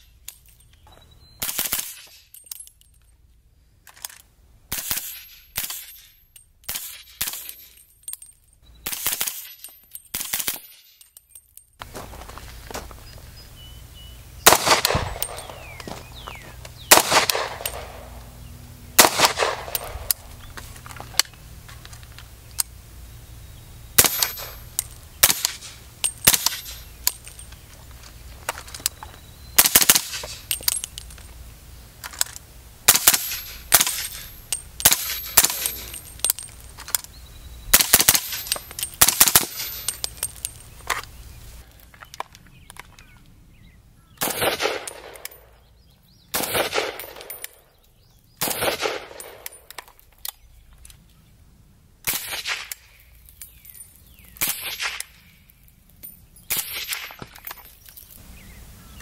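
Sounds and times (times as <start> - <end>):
rifle shots with longer echo: 14.4 - 15.8, 16.8 - 18.3, 18.9 - 20.2, 24.0 - 24.6, 25.2 - 26.8, 29.6 - 30.4, 44.2 - 45.6, 46.3 - 47.7, 48.4 - 49.5
suppressed rifle shots: 14.4 - 15.8, 16.9 - 18.2, 19.0 - 20.2, 44.2 - 45.3, 46.3 - 47.4, 48.4 - 49.4.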